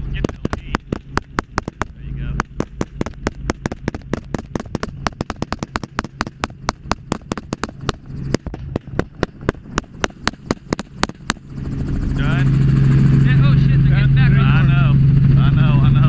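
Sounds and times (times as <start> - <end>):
helicopter rotor and engine hum: 0.0 - 16.0
rapid gunfire: 0.2 - 11.6.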